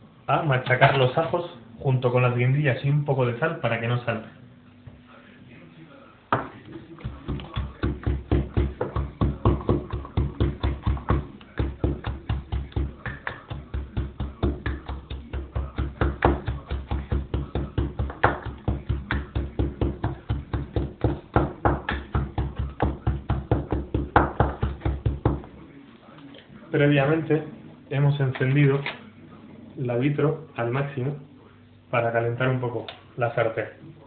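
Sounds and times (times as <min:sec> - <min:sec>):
pestle pounding in a mortar: 0:07.0 - 0:25.6.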